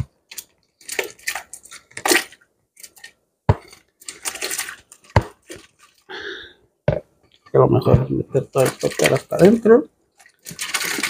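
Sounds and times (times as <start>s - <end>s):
shrimp shells sliding on plastic: 0.3s - 6.1s, 10.2s - 11.0s.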